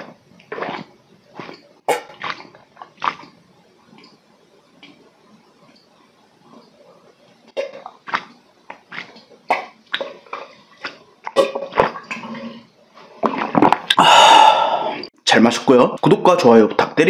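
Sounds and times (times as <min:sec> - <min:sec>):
man gulping from a bottle: 0:07.5 - 0:12.6, 0:13.2 - 0:15.1.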